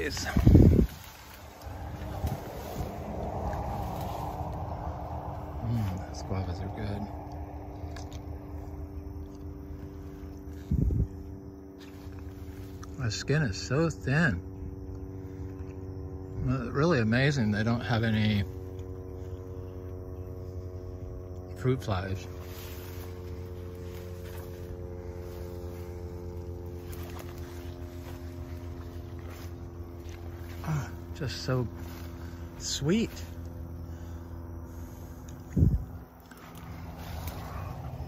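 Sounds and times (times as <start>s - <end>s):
low hum and rumble: 0.0s - 38.0s.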